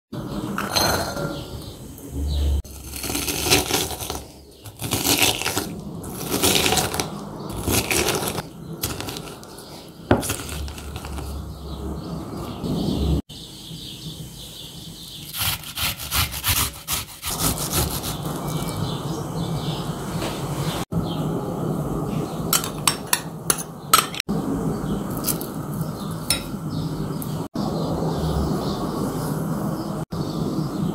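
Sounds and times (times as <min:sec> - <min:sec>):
onion scraping on metal grater: 0:02.7 - 0:09.6, 0:10.2 - 0:11.4, 0:15.3 - 0:18.8.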